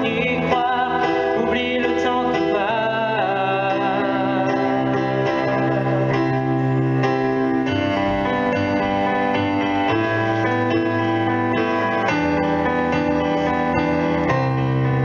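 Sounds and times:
concert band playing: 0.0s - 15.0s
piano: 0.0s - 15.0s.

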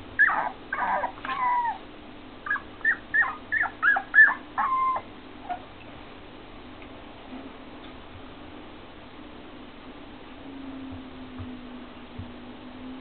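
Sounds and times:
puppies yelping and whining: 0.2s - 1.8s, 2.4s - 5.6s.

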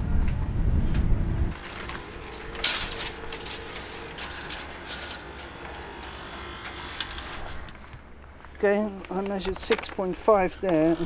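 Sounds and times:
sharp clatter: 1.5s - 7.8s
tape measure reel clicking: 1.5s - 7.8s.

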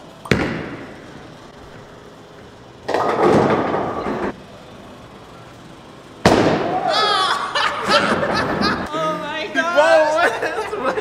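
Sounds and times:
bowling ball thudding and rolling: 2.8s - 4.4s
bowling pins crashing: 2.9s - 4.3s.

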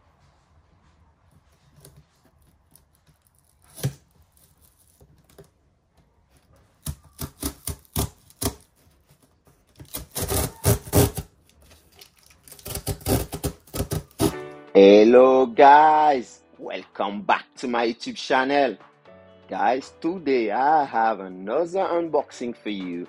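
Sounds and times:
cardboard ripping: 1.8s - 5.4s, 6.8s - 14.5s.

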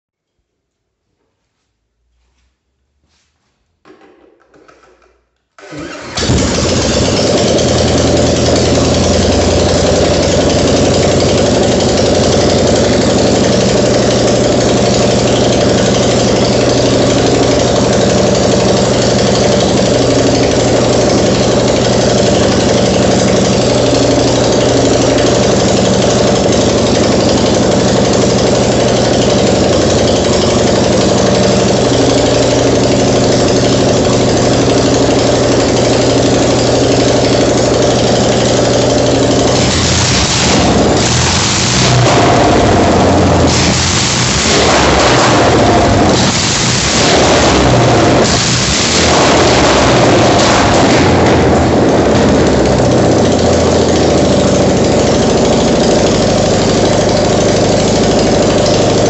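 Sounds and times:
engine idling: 5.6s - 59.0s.

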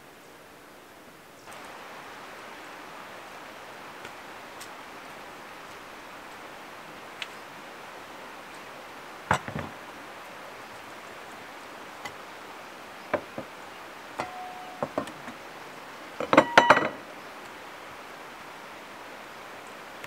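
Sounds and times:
open air rustle: 0.0s - 20.0s
plates set on wooden table: 9.3s - 9.8s, 14.2s - 15.4s, 16.2s - 17.1s
ringing clinks: 14.2s - 15.1s, 16.2s - 17.0s.

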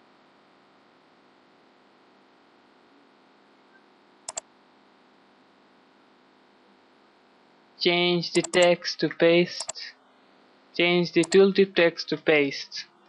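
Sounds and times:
computer mouse double-click: 4.3s - 4.5s, 8.4s - 8.7s.

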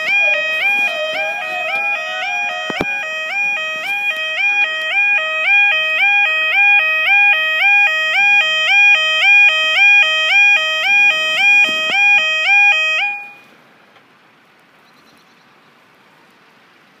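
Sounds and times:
level crossing two-tone alarm: 0.0s - 13.4s
faint outdoor background: 0.0s - 17.0s.

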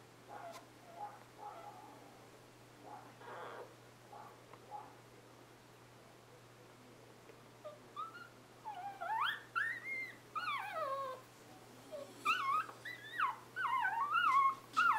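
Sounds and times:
puppies whimpering and squeaking: 8.0s - 11.2s, 11.9s - 14.9s.

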